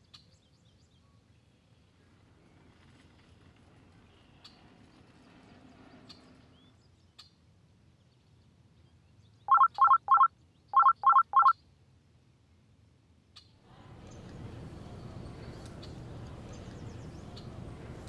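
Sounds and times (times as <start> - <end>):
phone alarm beeps: 9.5 - 11.5.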